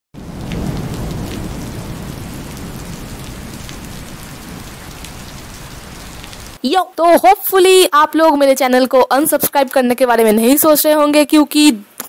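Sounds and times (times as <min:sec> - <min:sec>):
rain on a hard surface: 0:00.2 - 0:06.6.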